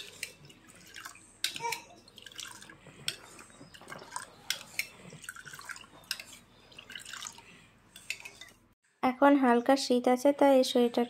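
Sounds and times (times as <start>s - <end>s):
wet drips: 0.0s - 8.6s
spoon stirring wet food mixture: 0.0s - 8.8s.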